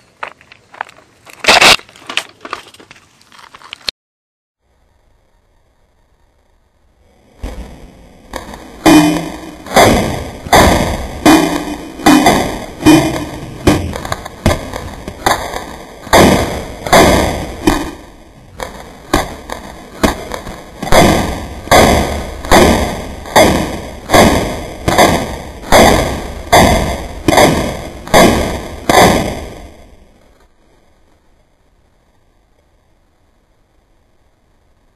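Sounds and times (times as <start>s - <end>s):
airsoft gun firing single shots: 8.9s - 29.8s.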